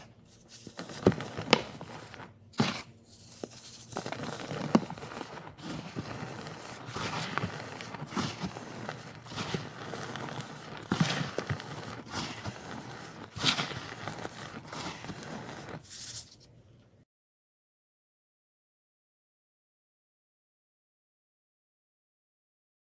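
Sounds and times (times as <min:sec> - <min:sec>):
hands crunching powder clumps: 0:00.0 - 0:16.4.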